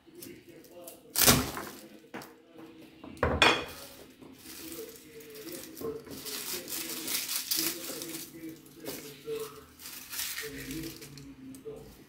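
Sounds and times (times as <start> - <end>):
garlic skins rustling: 3.7 - 12.0.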